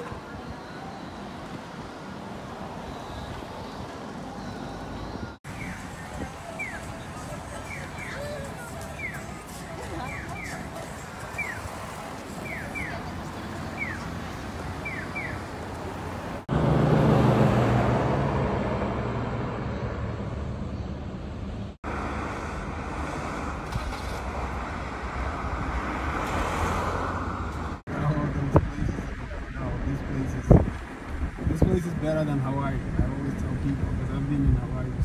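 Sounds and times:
road traffic: 0:00.0 - 0:35.0
crossing signal electronic chirps: 0:02.7 - 0:05.9, 0:12.4 - 0:13.1
wind rush on microphone: 0:27.4 - 0:35.0.

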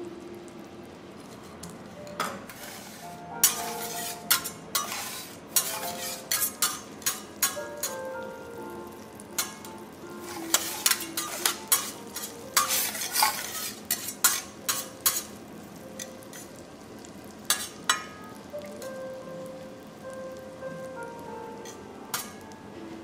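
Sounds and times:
soft background music: 0:00.0 - 0:23.0
food sizzling on griddle: 0:01.1 - 0:22.9
metal spatulas clicking and scraping: 0:03.4 - 0:08.0, 0:09.4 - 0:15.3, 0:17.5 - 0:18.0, 0:21.6 - 0:22.4.

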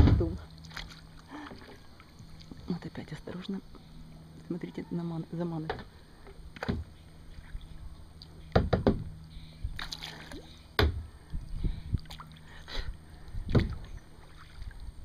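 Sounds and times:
paddle splashing in water: 0:00.0 - 0:02.6, 0:09.8 - 0:10.6, 0:13.4 - 0:14.9
sharp knocks: 0:08.5 - 0:09.1.

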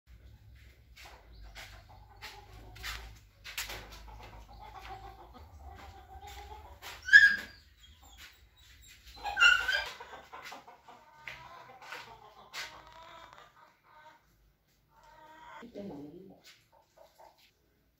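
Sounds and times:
high-pitched animal yelps: 0:09.2 - 0:10.0.

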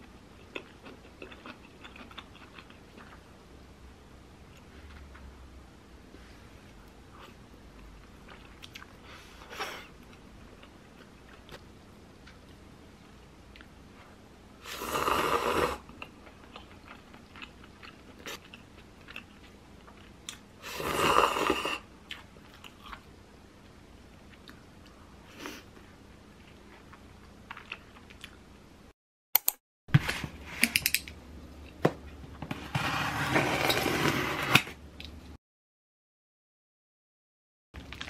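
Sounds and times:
faint chewing: 0:00.4 - 0:03.2
person slurping soup: 0:14.7 - 0:15.8, 0:20.7 - 0:21.8.

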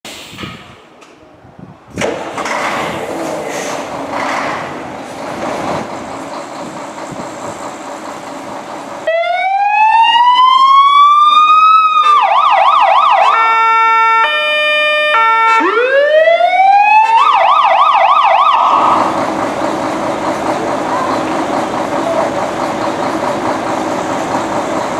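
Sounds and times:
diesel engine idling: 0:03.7 - 0:09.9, 0:17.9 - 0:24.9
fire engine electronic siren: 0:09.0 - 0:19.3.

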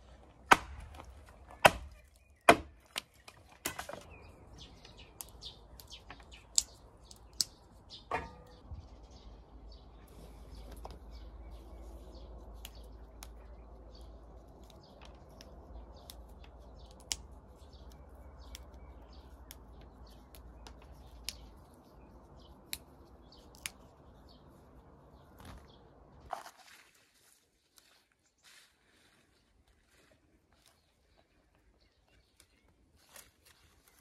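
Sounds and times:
birds chirping faintly: 0:00.0 - 0:34.0
green beans snapping: 0:04.8 - 0:07.8, 0:12.3 - 0:24.2.

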